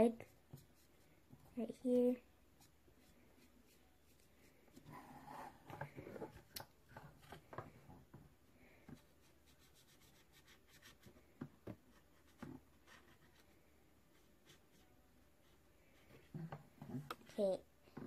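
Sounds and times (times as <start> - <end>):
marker scratching on paper: 9.0 - 11.2.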